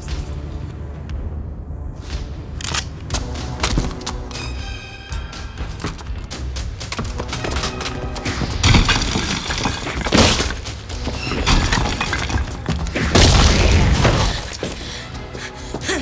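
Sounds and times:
film score music: 0.0 - 16.0
cracking and crumbling debris: 6.8 - 14.9
bodies smashing through walls: 8.4 - 14.7.

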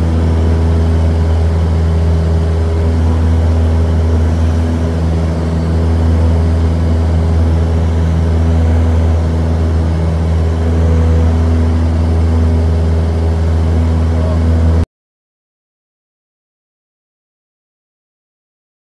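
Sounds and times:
propeller airplane engine drone: 0.0 - 14.9.

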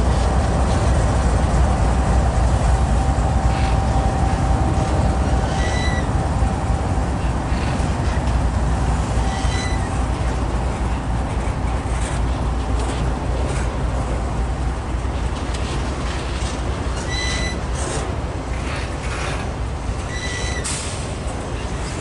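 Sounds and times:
train wheels rumbling on rail: 0.0 - 22.0
high wheel squeaks: 5.4 - 6.2, 9.2 - 10.0, 16.9 - 18.0, 20.0 - 21.0.

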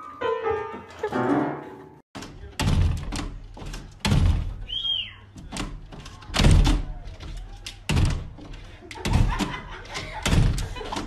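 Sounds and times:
dog paws banging glass door: 2.2 - 4.7, 5.4 - 11.0.

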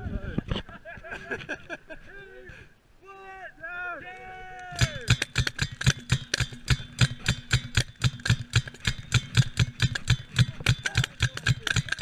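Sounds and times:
paintball marker firing: 4.7 - 12.0.

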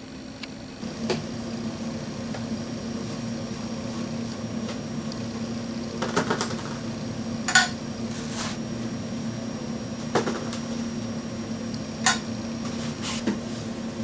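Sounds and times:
low machine hum: 0.0 - 14.0.

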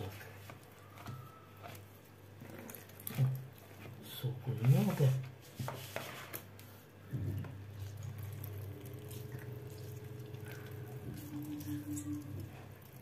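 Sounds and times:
juice dripping into plastic bowl: 0.0 - 4.9, 7.0 - 13.0
steady low hum: 6.8 - 13.0.

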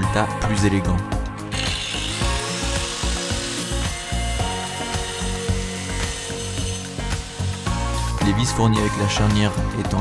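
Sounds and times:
background music with low notes: 0.0 - 10.0.

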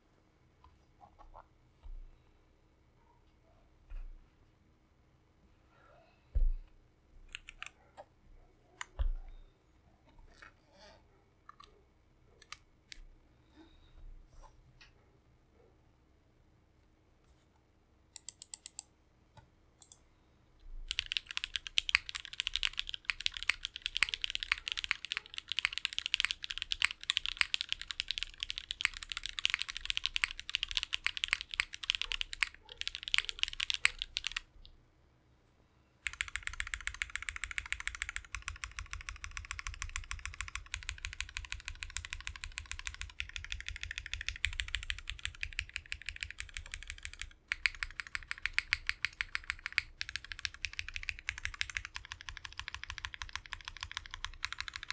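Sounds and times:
fast typing on mechanical keyboard: 20.9 - 34.5, 36.0 - 54.9.

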